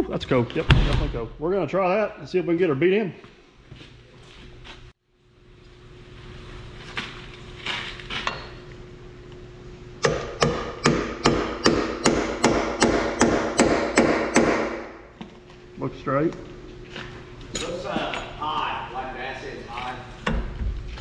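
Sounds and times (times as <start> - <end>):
hammer striking metal bar: 10.0 - 14.8.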